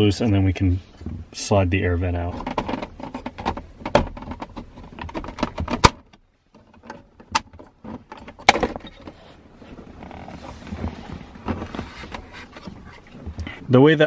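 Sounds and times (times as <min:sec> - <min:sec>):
low scraping rustle: 0:09.1 - 0:13.2.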